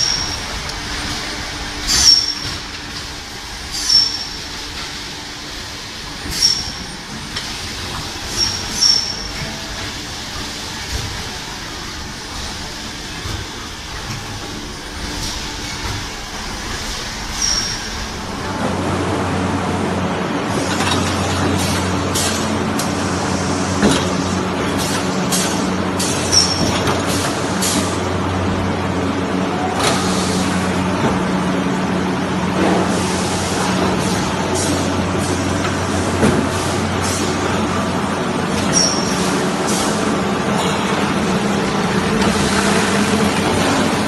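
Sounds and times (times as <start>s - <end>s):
high-pitched hissing squeaks: 3.7s - 4.4s, 6.3s - 6.9s, 8.3s - 9.4s, 17.3s - 18.1s, 38.7s - 39.4s.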